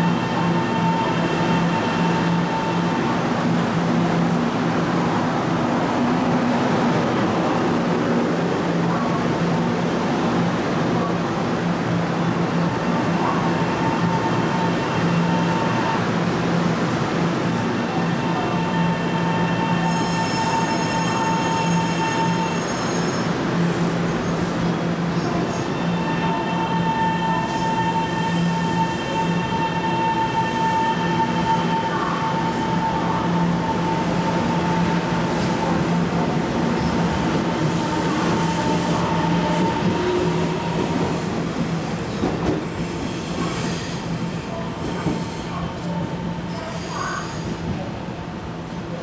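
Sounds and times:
high-pitched wheel squeals: 18.7 - 23.3.

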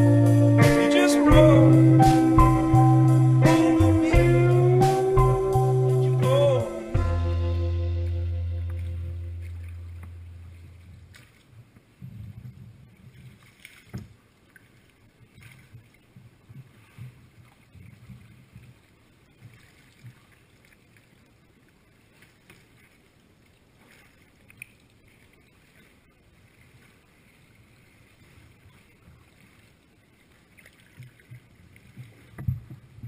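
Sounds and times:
paddle dipping: 0.0 - 33.0
waves lapping against hull: 0.0 - 33.0.

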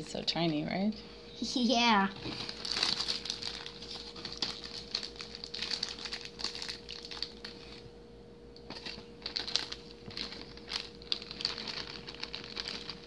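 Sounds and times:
plastic bag crinkling: 2.2 - 7.8, 8.7 - 13.0.

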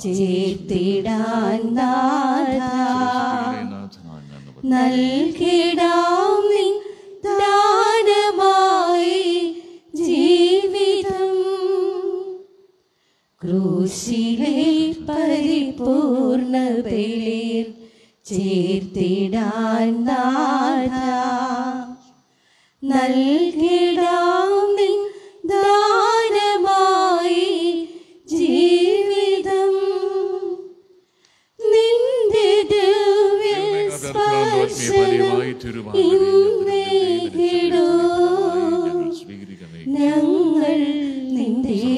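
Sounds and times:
woman singing a hymn: 0.0 - 3.7, 4.6 - 12.4, 13.4 - 22.0, 22.8 - 30.8, 31.6 - 35.4, 36.0 - 39.1, 39.9 - 41.9
woman breathing: 17.8 - 18.2, 22.2 - 22.8, 25.1 - 25.4, 31.0 - 31.6.

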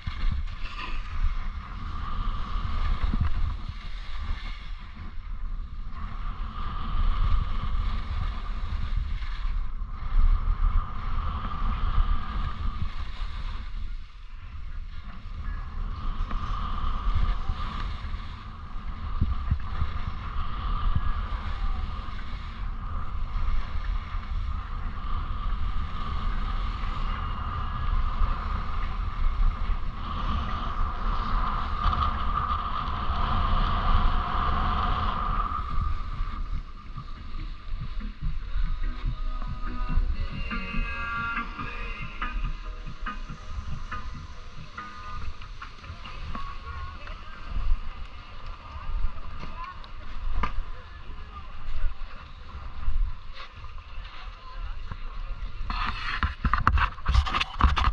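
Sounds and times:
skis scraping over snow: 0.0 - 57.9
wind buffeting microphone: 0.0 - 57.9.

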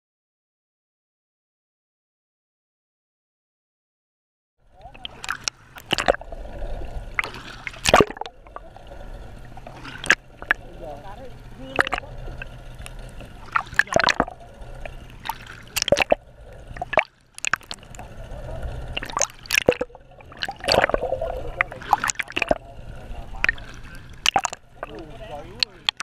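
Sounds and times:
water sloshing and gurgling: 4.7 - 26.0
sharp clicks and knocks: 16.8 - 17.8.

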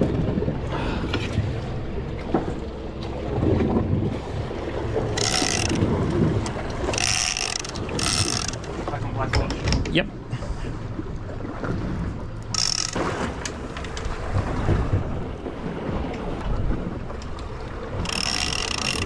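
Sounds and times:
boat engine low rumble: 0.0 - 19.0
mechanical ratcheting buzzes: 5.2 - 8.8, 12.5 - 13.1, 18.0 - 19.0.

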